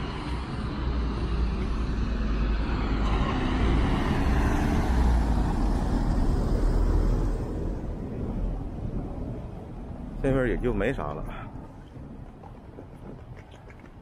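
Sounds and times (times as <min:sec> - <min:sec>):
truck engine rumble: 0:00.0 - 0:14.0
tyre noise on wet cobblestones: 0:10.7 - 0:14.0.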